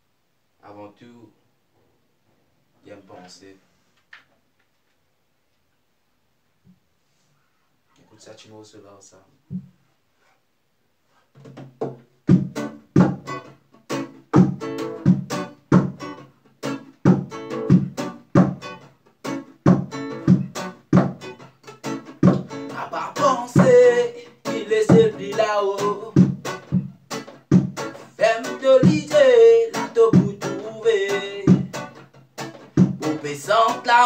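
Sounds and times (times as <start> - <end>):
acoustic guitar strumming: 11.4 - 34.0
man singing: 22.7 - 26.2, 28.1 - 31.7, 33.0 - 34.0.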